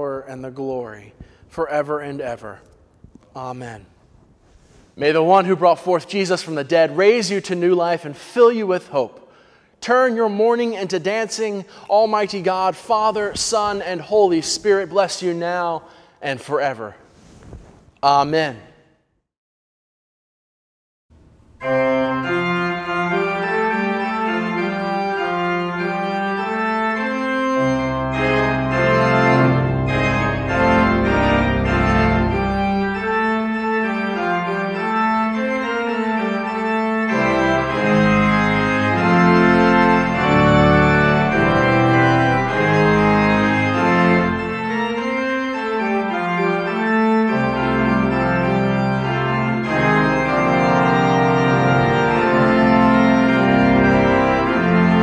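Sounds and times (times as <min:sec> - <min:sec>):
organ playing held chords: 0:05.0 - 0:16.8, 0:21.2 - 0:55.0
deep organ pedal bass notes: 0:21.6 - 0:55.0.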